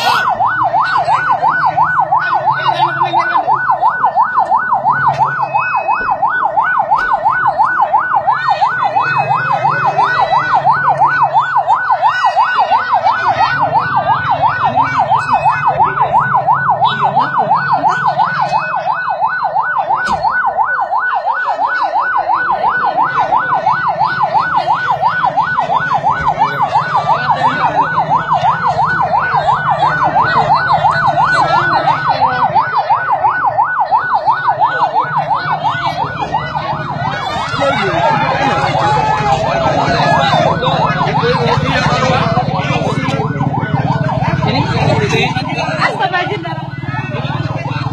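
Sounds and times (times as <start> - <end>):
electronic yelp siren: 0.0 - 47.9.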